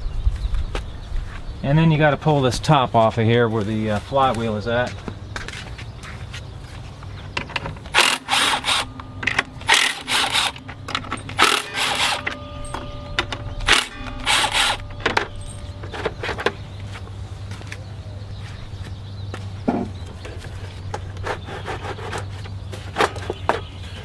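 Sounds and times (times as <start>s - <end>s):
cordless power driver spinning bolts: 7.4s - 16.6s.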